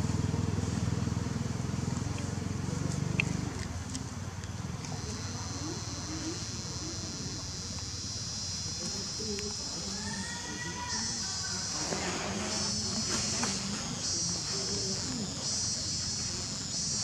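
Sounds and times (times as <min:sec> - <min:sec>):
murmur of voices: 0:00.2 - 0:17.0
high insect buzz: 0:04.8 - 0:17.0.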